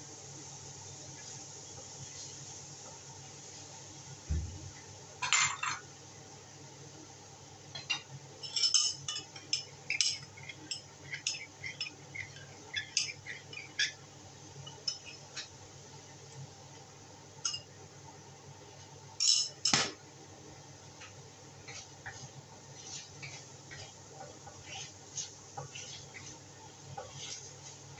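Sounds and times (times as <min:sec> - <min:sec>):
steady low hiss: 0:00.0 - 0:08.4
low thump: 0:04.3 - 0:04.7.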